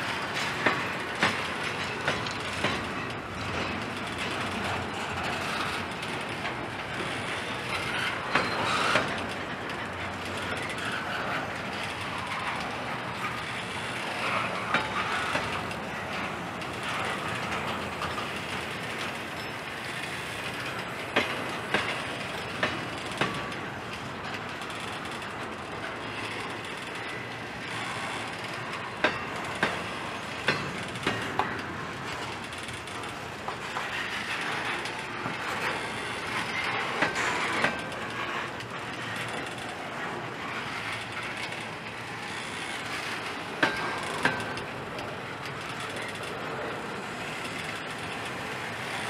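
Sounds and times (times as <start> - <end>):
train wheels rolling on rails: 0.0 - 49.0.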